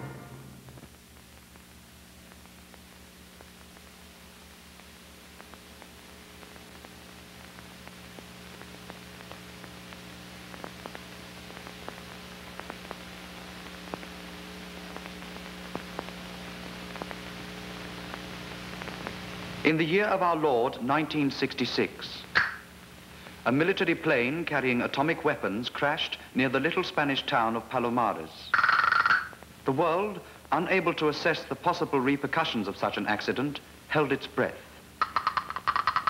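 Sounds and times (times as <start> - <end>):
low hum: 0.0 - 19.7
film soundtrack hiss: 0.0 - 36.0
clicks and pops: 22.3 - 22.7, 28.5 - 29.5, 35.0 - 36.0.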